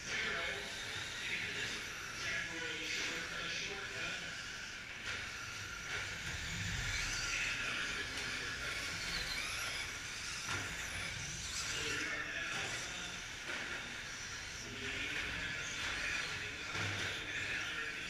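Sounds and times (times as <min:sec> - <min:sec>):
electric motors whining: 0:00.0 - 0:18.0.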